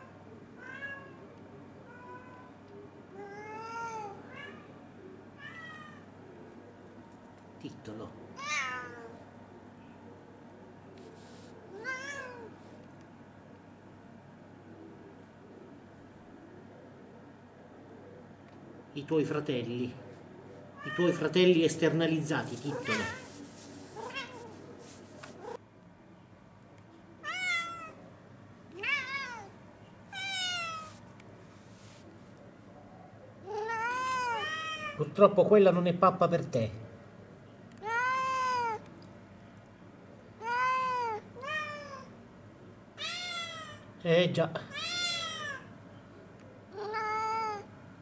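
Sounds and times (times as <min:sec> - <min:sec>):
cat meowing: 0:00.0 - 0:01.2, 0:01.8 - 0:02.5, 0:03.2 - 0:04.8, 0:05.4 - 0:06.1, 0:08.4 - 0:09.2, 0:11.7 - 0:12.5, 0:20.8 - 0:21.3, 0:22.6 - 0:23.4, 0:24.0 - 0:24.6, 0:27.2 - 0:28.0, 0:28.7 - 0:29.5, 0:30.1 - 0:31.0, 0:33.4 - 0:35.0, 0:37.8 - 0:38.9, 0:40.4 - 0:42.1, 0:43.0 - 0:43.9, 0:44.7 - 0:45.7, 0:46.7 - 0:47.7.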